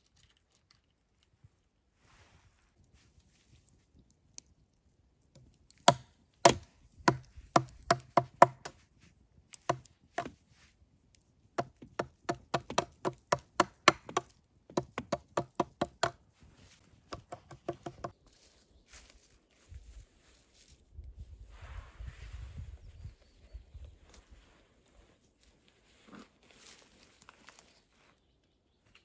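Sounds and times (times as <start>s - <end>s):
knife chopping into wood: 5.8s - 8.8s, 9.6s - 10.4s, 11.6s - 16.2s, 17.1s - 18.1s.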